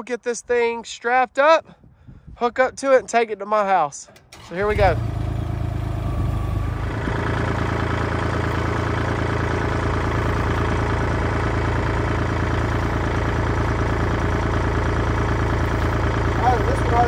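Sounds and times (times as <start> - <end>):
tractor engine idling: 4.1 - 17.0.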